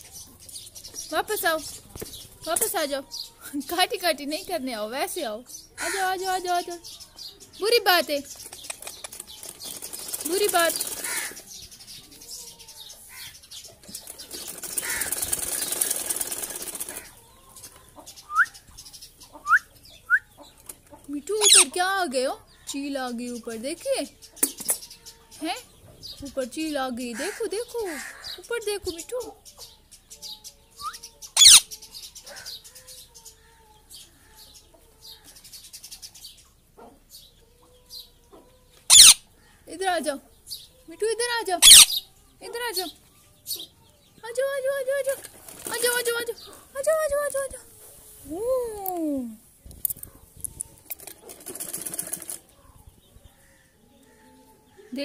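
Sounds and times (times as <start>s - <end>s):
rustling toy: 13.8s - 17.1s, 49.7s - 52.5s
parakeet squawking: 14.8s - 15.2s, 21.4s - 21.8s, 31.4s - 31.7s, 38.9s - 39.3s, 41.6s - 42.1s
parakeet rising chirp: 30.8s - 31.8s, 38.9s - 39.2s, 41.6s - 42.1s.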